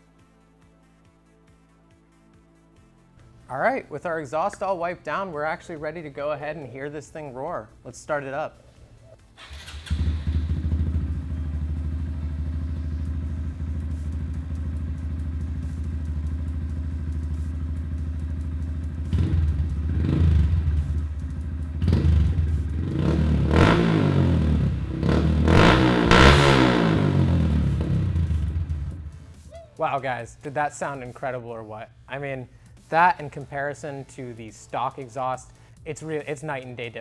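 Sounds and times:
motorcycle engine idling: 9.4 - 25.6, 26.8 - 29.5
motorcycle engine revving: 9.4 - 29.5.

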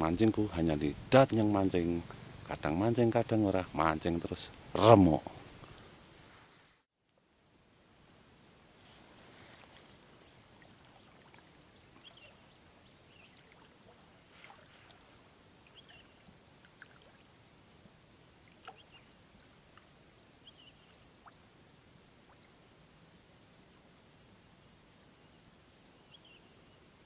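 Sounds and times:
low steady hiss: 0.0 - 27.0
water sloshing and lapping: 10.5 - 12.4, 13.2 - 16.0, 16.6 - 17.3.

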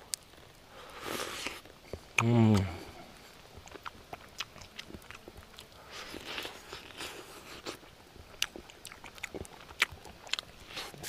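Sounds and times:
person chewing and biting: 3.6 - 11.0.

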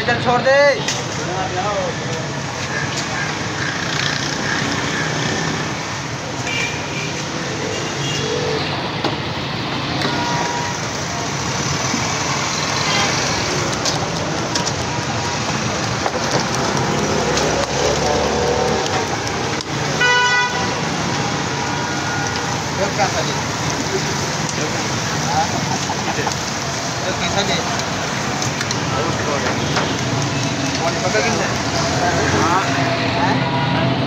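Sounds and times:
road traffic: 0.0 - 34.0
batter sizzling in hot oil: 20.8 - 32.8
faint voices: 20.8 - 34.0.

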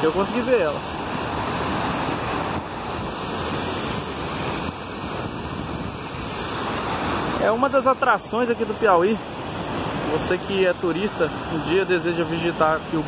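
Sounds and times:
river water rushing over rocks: 0.0 - 13.0
wind buffeting microphone: 0.6 - 7.7.

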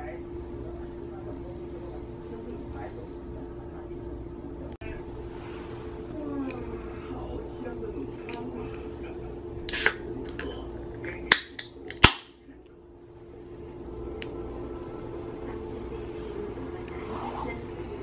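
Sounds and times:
steady low hum: 0.0 - 18.0
can seal hiss: 9.7 - 10.0.

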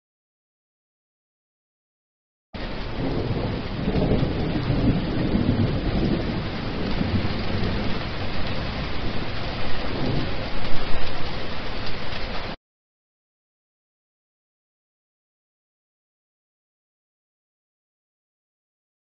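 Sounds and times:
heavy rain on water: 2.6 - 12.6
low thunder rumble: 2.6 - 12.6.

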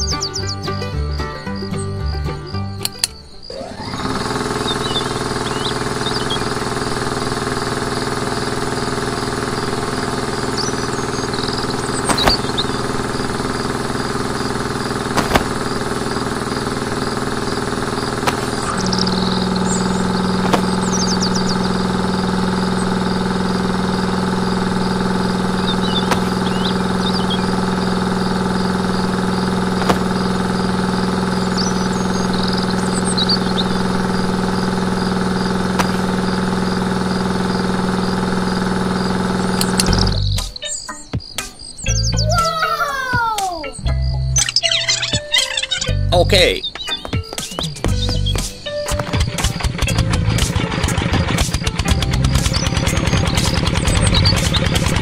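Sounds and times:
faint bird chirps: 0.0 - 6.7, 8.7 - 39.2, 39.8 - 50.4
sharp clicks: 2.8 - 3.2, 11.9 - 13.5, 39.5 - 40.5, 46.7 - 55.0
small motor humming: 3.3 - 40.4.

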